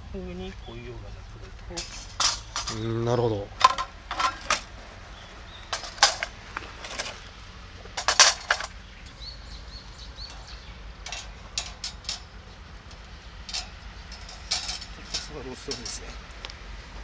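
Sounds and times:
steel grill grate clinking: 0:01.8 - 0:04.8, 0:05.6 - 0:16.3.

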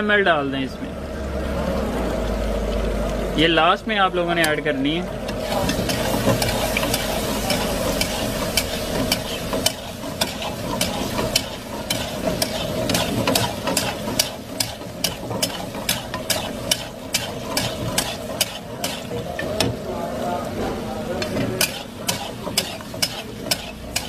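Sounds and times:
low sizzle: 0:00.0 - 0:24.0
spatula scraping metal pan: 0:05.4 - 0:19.8, 0:21.2 - 0:24.0.

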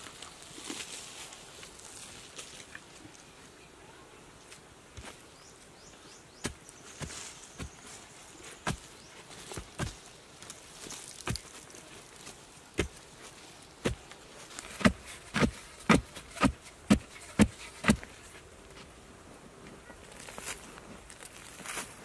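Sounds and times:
wooden pole striking hard soil: 0:06.3 - 0:07.9, 0:08.6 - 0:13.0, 0:13.8 - 0:18.2.

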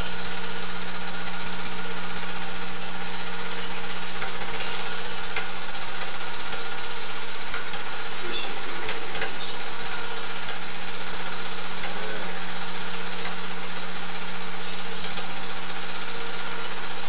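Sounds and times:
film projector running: 0:00.0 - 0:17.0.

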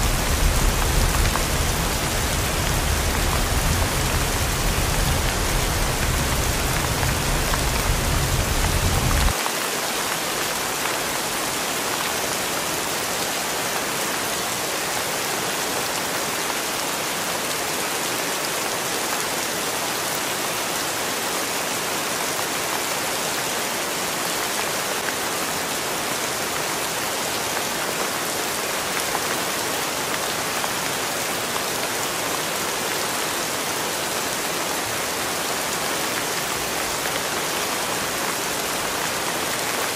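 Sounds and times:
low road rumble: 0:00.0 - 0:09.3
rain on wet pavement: 0:00.0 - 0:39.9.

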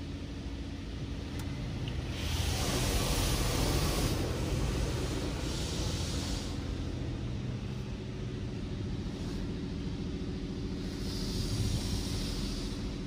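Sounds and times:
steady low hum: 0:00.0 - 0:13.0
water jets spraying on car: 0:01.6 - 0:07.2.

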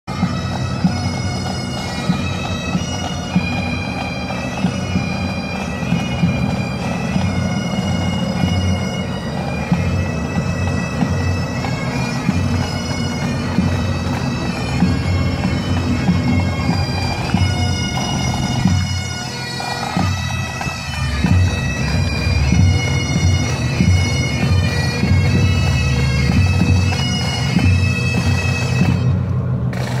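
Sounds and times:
bagpipes playing: 0:00.1 - 0:30.0.

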